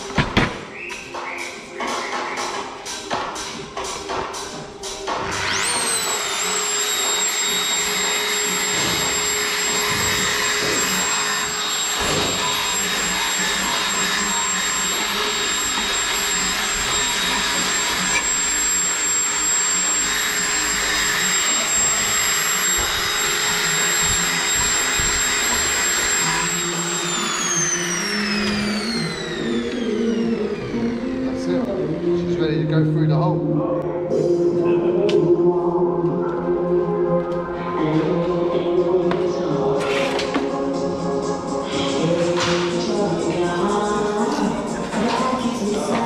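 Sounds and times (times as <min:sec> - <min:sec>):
burnishing machine motor whine: 0:05.3 - 0:33.1.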